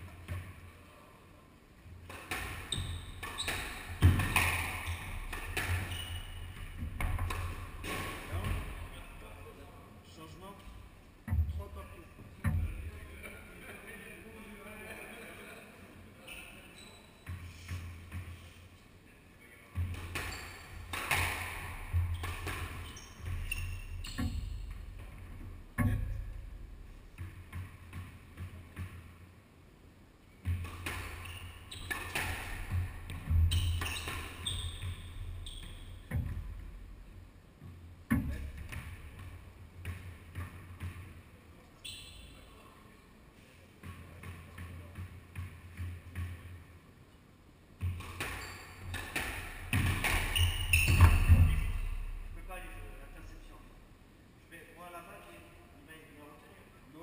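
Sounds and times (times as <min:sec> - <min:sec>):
squash ball striking rackets and walls: 0:02.0 - 0:08.8, 0:19.7 - 0:29.2, 0:30.4 - 0:41.3, 0:43.8 - 0:46.7, 0:47.8 - 0:52.3
shoes squeaking on floorboards: 0:02.3 - 0:08.6, 0:16.2 - 0:18.5, 0:19.8 - 0:25.1, 0:30.6 - 0:36.2, 0:41.8 - 0:42.5, 0:47.8 - 0:52.0.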